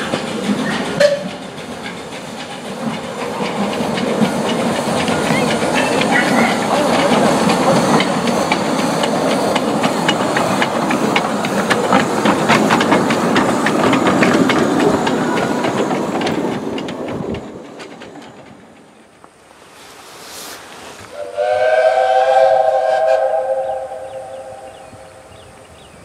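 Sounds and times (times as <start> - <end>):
steam locomotive hissing: 0.0 - 26.0
irregular clicking: 1.3 - 18.9.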